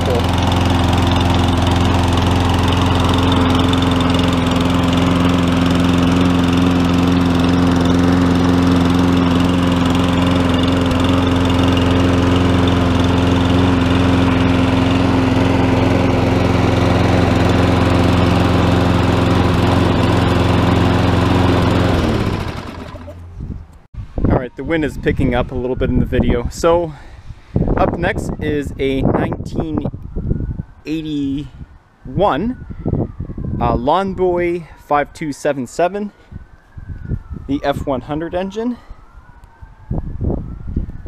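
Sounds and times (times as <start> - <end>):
lawn mower engine running: 0.0 - 23.4.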